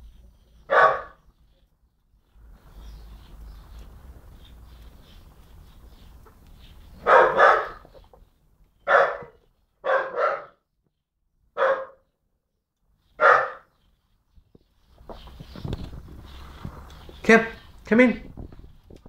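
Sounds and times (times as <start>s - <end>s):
young dog barking: 0.6s - 1.2s, 7.0s - 8.1s, 8.8s - 10.6s, 11.6s - 12.1s, 13.2s - 13.7s.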